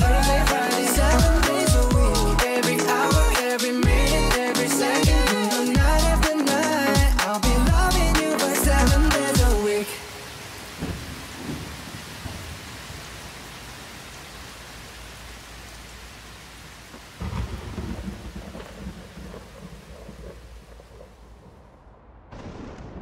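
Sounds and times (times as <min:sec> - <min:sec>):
heavy rain on street: 0:08.0 - 0:21.7
thunder rumble: 0:10.7 - 0:13.0, 0:16.9 - 0:23.0.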